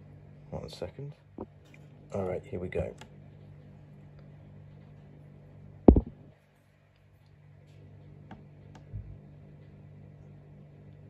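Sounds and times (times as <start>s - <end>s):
plastic tub knock: 5.9s - 6.1s.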